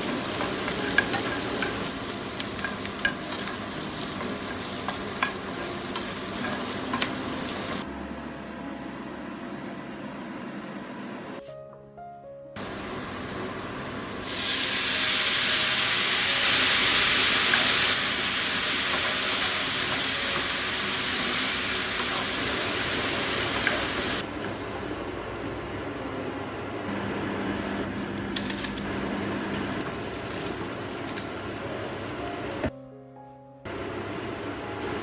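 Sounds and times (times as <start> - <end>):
sauce sizzling in frying pan: 0.0 - 7.8, 12.6 - 24.3.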